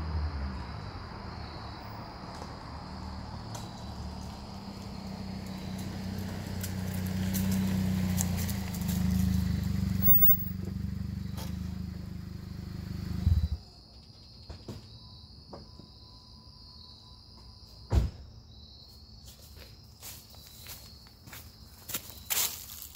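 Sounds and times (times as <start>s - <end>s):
car exhaust drone: 0.0s - 13.7s
crickets chirping: 0.0s - 22.9s
engine shut-off thump: 13.1s - 13.6s.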